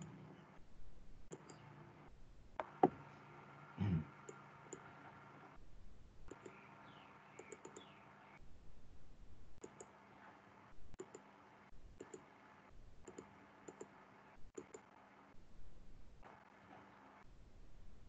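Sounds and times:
computer mouse clicks: 0:01.3 - 0:01.7, 0:04.2 - 0:04.9, 0:06.3 - 0:06.7, 0:07.3 - 0:08.0, 0:09.6 - 0:10.3, 0:10.9 - 0:11.4, 0:12.0 - 0:12.4, 0:13.0 - 0:15.0.

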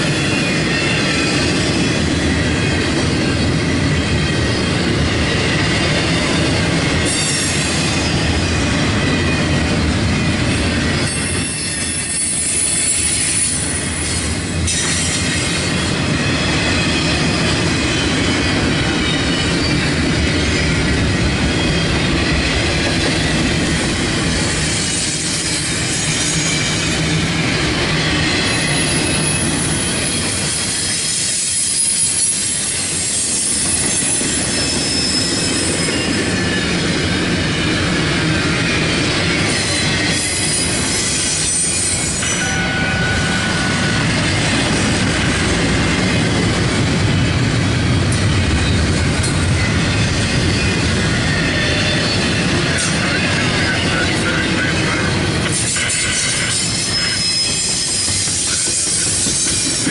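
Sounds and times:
train wheels rumbling on rail: 0:00.0 - 0:59.9
high-pitched wheel squeals: 0:11.0 - 0:15.2, 0:28.0 - 0:36.6, 0:55.7 - 0:59.9.

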